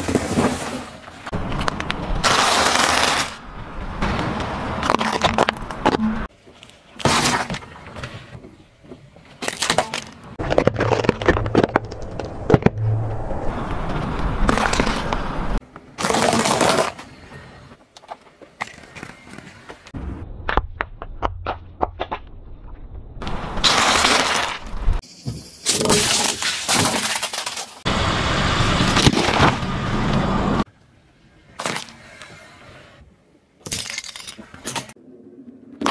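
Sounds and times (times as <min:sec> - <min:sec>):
tyre crushing crunchy items: 0:00.0 - 0:03.4, 0:09.3 - 0:12.8, 0:23.2 - 0:25.0
low rumble: 0:10.4 - 0:15.6.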